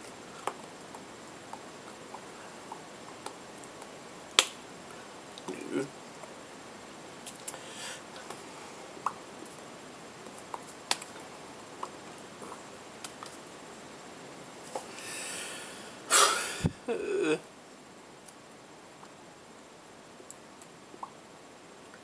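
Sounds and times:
man puffing breath: 15.0 - 17.4
man grunting: 16.2 - 17.4.

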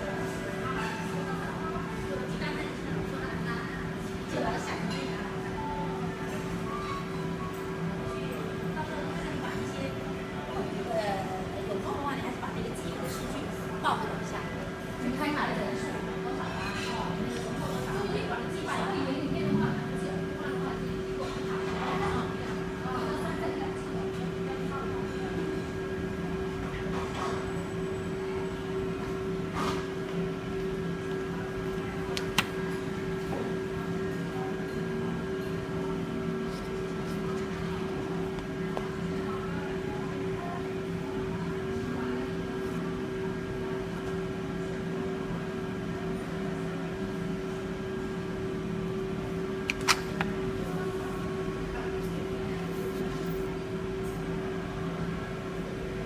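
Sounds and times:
steady mechanical hum: 0.0 - 56.0.

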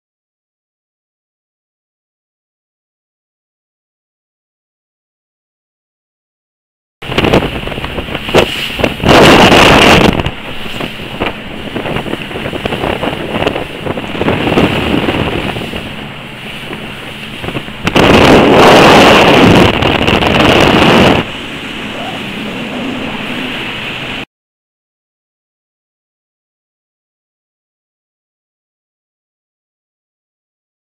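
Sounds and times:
rushing water and spray: 7.0 - 24.3
wind buffeting microphone: 7.0 - 24.3.

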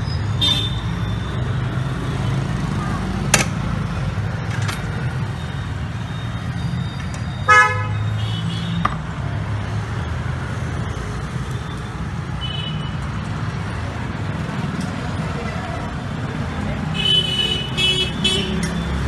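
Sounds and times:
street traffic rumble: 0.0 - 19.0
vehicle horn honk: 7.5 - 8.7.

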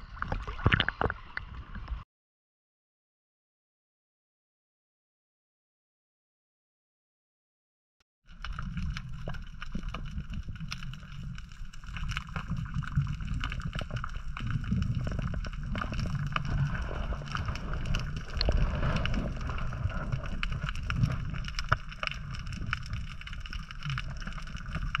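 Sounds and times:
underwater clicks and crackles: 0.0 - 2.0, 8.3 - 25.0
underwater rumble of moving water: 8.3 - 25.0.

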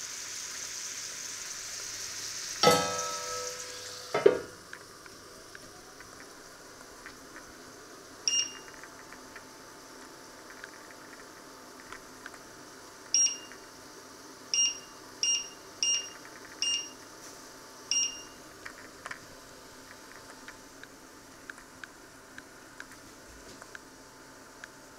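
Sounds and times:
touch panel short beeps: 8.3 - 8.7, 13.2 - 13.5, 14.6 - 17.0, 17.9 - 18.4.

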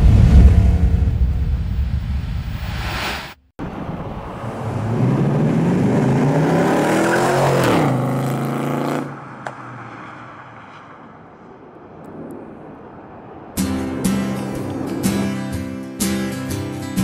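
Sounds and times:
truck engine accelerating past: 4.3 - 16.2.

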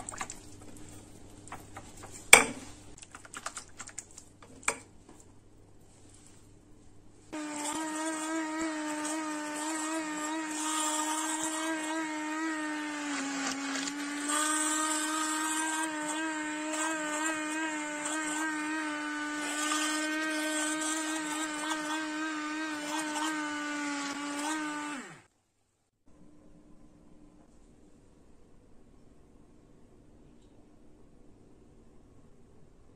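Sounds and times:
immersion blender motor whine: 7.3 - 25.3.

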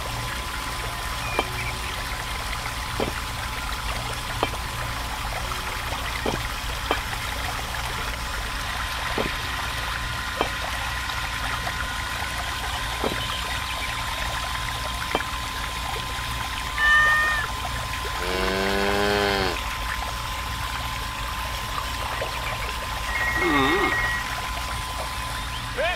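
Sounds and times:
drips or clicks: 0.0 - 25.8
water trickling into pond: 0.0 - 25.9
faint steady tone: 21.6 - 25.7.

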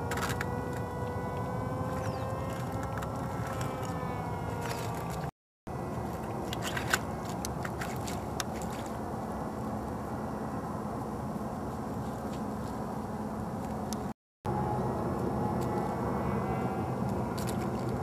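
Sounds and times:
ice cracking and crunching: 4.6 - 5.3.

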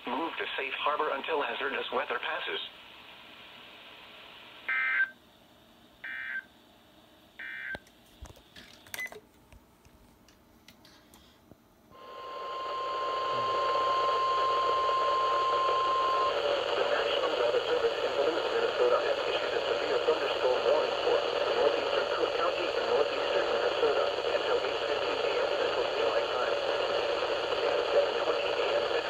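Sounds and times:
radio static: 0.0 - 2.7, 12.0 - 29.0
steady alarm tone: 12.0 - 16.7.

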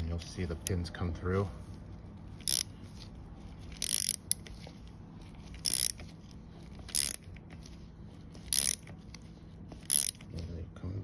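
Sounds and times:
ratcheting wrench clicking: 2.4 - 3.1, 3.7 - 4.6, 5.4 - 6.2, 6.8 - 7.4, 8.4 - 9.2, 9.8 - 10.3.

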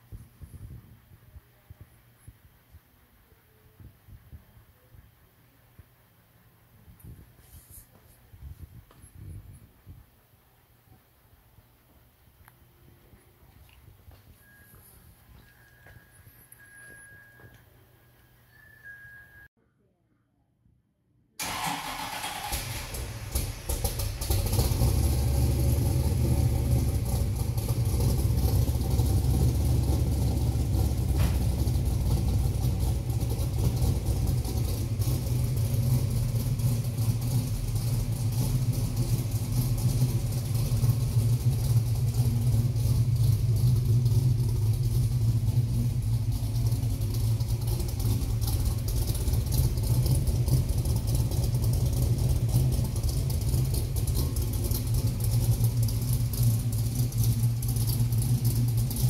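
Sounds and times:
car engine idling: 21.4 - 59.0.

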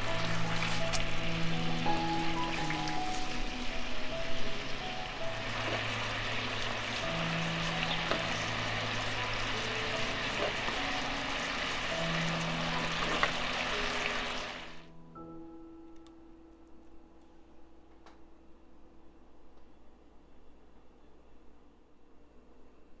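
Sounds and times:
food sizzling in frying pan: 0.0 - 14.9
background music: 0.0 - 20.6.

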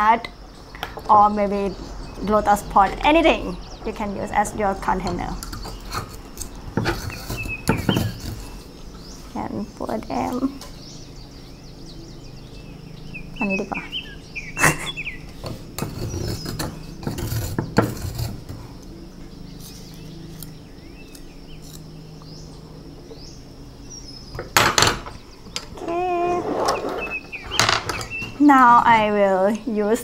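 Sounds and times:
palette knives clinking and scraping: 5.4 - 8.6.

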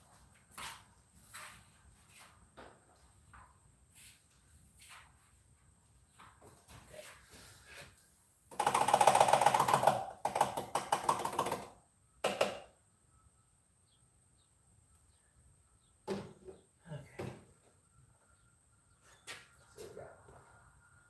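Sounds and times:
rapid metallic clicking and rattling: 8.5 - 11.7.

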